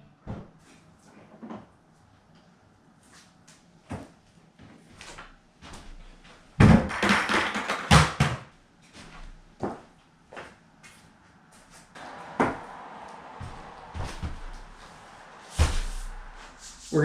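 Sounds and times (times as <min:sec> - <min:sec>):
footsteps: 0:04.8 - 0:06.4, 0:08.9 - 0:17.0.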